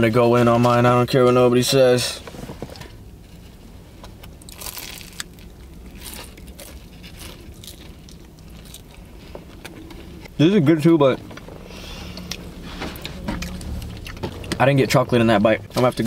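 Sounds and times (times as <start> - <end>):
crunching of flaky pastry: 4.0 - 10.3.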